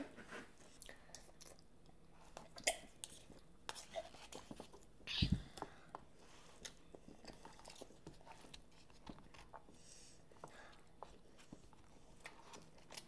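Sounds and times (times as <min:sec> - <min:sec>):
chewing: 0:06.4 - 0:13.0.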